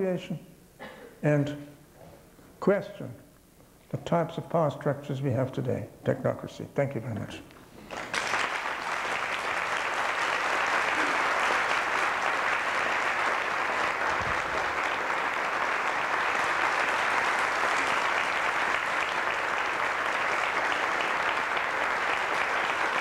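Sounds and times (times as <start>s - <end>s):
audience applauding: 7.8s - 23.0s.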